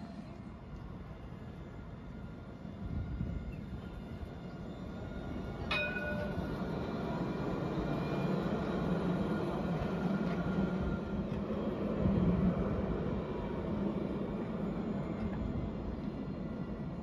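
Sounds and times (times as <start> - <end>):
tram rumbling past: 0.0 - 17.0
sharp ringing metallic strike: 5.7 - 6.5.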